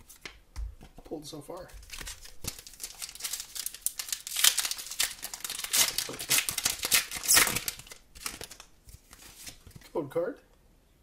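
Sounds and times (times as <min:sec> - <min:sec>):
foil wrapper crinkling and tearing: 0:01.8 - 0:09.6.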